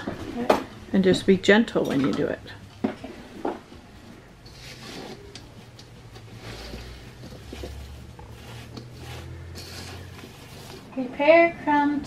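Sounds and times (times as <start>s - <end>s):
spatula scraping a metal bowl: 4.4s - 11.2s.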